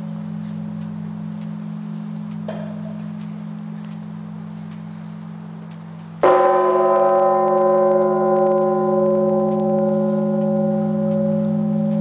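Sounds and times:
deep steady hum: 0.0s - 12.0s
church bell ringing: 6.2s - 12.0s.

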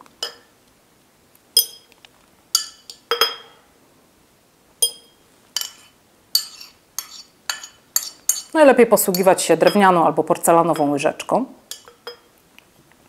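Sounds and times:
spoon clinking against glass: 1.6s - 1.9s, 2.6s - 3.6s, 4.8s - 8.5s, 11.7s - 12.3s.

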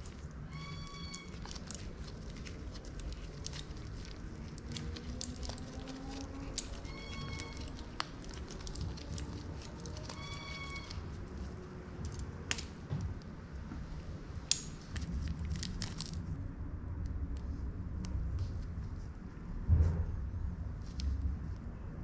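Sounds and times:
low background rumble: 0.0s - 22.0s
short squeak: 0.4s - 1.3s, 10.0s - 11.1s
bicycle chain clinking: 0.7s - 11.0s, 15.6s - 16.4s.

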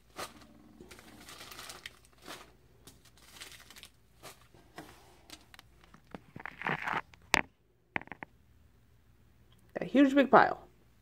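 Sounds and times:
plastic bags crinkling: 0.0s - 7.1s.

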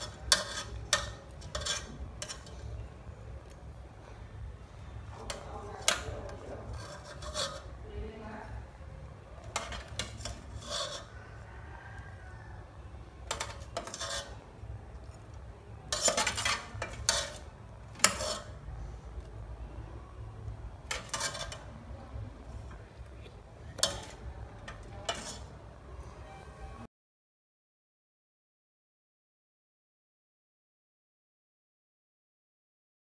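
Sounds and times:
metal utensil scraping pot: 0.0s - 3.6s, 5.1s - 7.8s, 9.4s - 12.2s, 13.2s - 19.4s, 20.7s - 25.7s.

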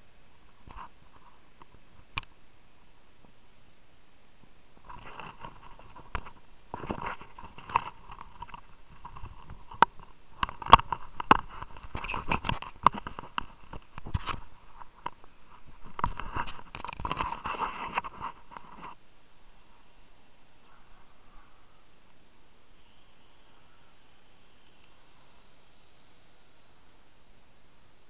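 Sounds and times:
drone motors buzzing whine: 4.5s - 28.0s
sharp clicks and crackles: 4.8s - 19.0s.

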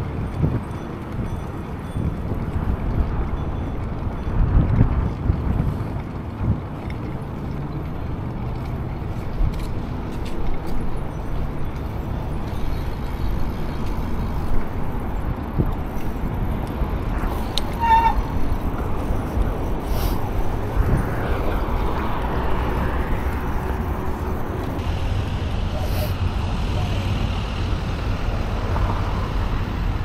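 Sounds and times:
wind rushing over microphone: 0.0s - 7.4s, 10.8s - 30.0s
bike tyres rolling: 0.0s - 30.0s
high squeak: 17.6s - 18.4s.

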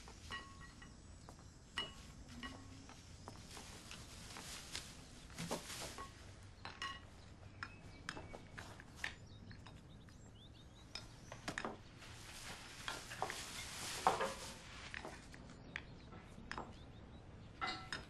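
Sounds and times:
dishes and utensils clinking: 0.1s - 3.0s, 5.8s - 8.3s, 17.6s - 18.0s.

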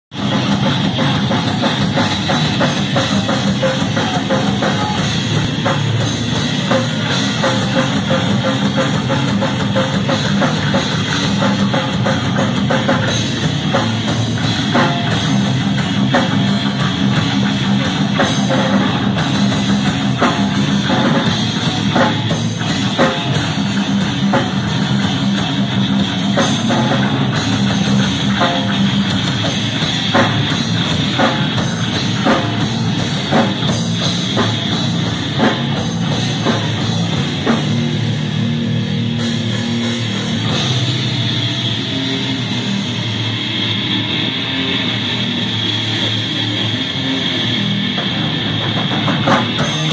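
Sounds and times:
electric bass: 0.0s - 49.9s
electric guitar: 0.1s - 49.9s.

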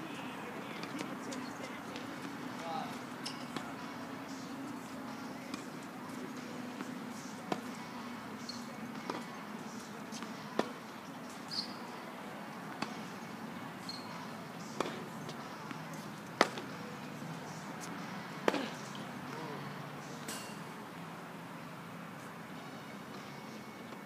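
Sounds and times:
tennis ball hit by rackets: 8.9s - 9.4s, 10.2s - 10.8s, 12.8s - 13.0s, 14.6s - 15.8s, 16.4s - 16.8s.

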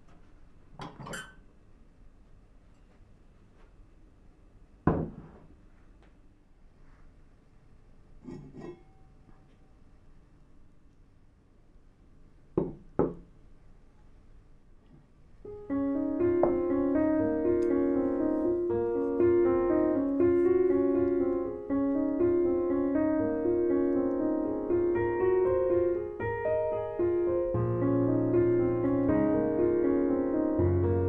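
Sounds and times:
gentle piano music: 15.4s - 31.0s.

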